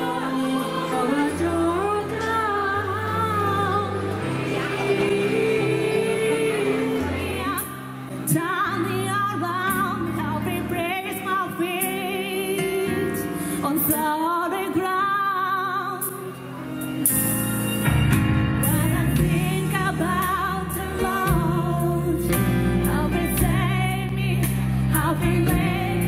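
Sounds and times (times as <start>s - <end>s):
woman singing with vibrato: 0.0s - 16.4s, 18.6s - 26.0s.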